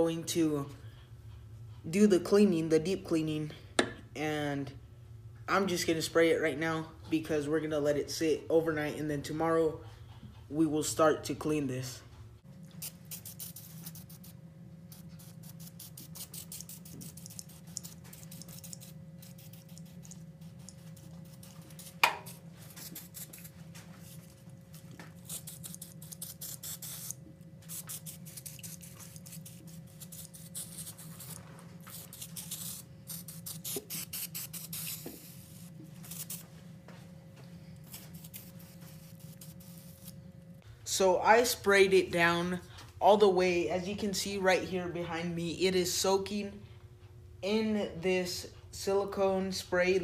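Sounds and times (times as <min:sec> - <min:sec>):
steady low hum: 0:00.0 - 0:50.0
aerosol spray hissing: 0:25.2 - 0:36.4.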